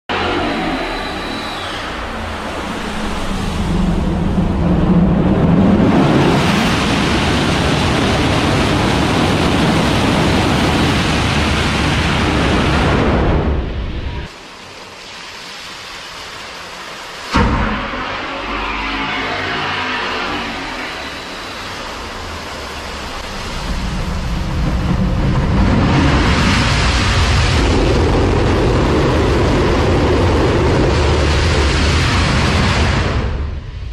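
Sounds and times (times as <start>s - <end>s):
rushing noise: 0.1s - 33.9s.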